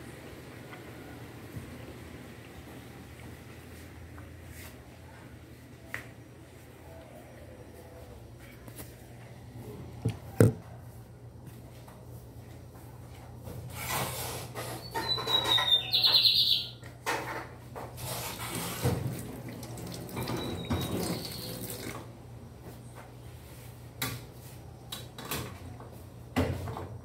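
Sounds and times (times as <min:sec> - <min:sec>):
brief high squeak: 0:13.8 - 0:16.6
tap water running into sink: 0:18.3 - 0:22.1.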